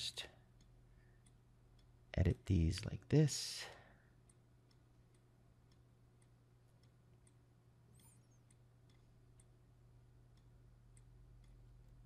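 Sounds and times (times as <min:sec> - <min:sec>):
faint low hum: 0:00.0 - 0:12.0
computer mouse clicks: 0:00.6 - 0:01.9, 0:04.2 - 0:09.6, 0:10.3 - 0:12.0.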